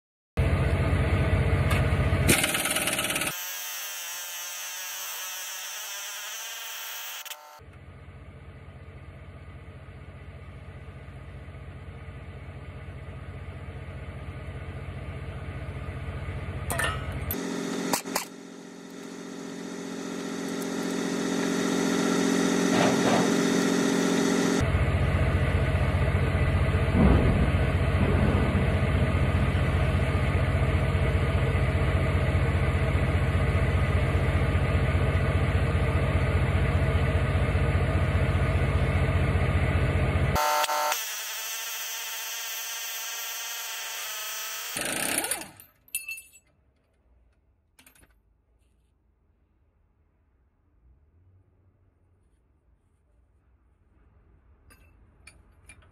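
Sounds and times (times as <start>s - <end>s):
impact wrench hammering: 2.3s - 3.5s, 16.7s - 24.6s.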